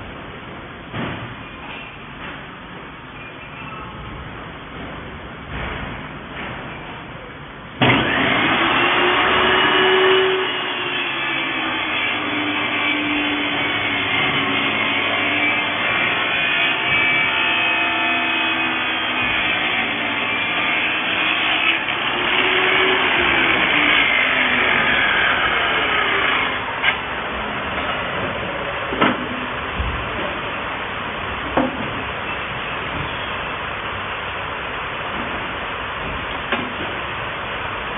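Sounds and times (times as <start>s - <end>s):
table saw ripping wooden board: 7.8s - 27.0s.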